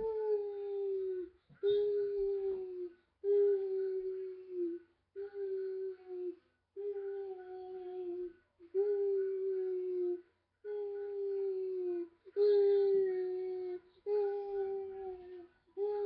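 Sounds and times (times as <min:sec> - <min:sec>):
boy singing long notes: 0:00.0 - 0:12.1.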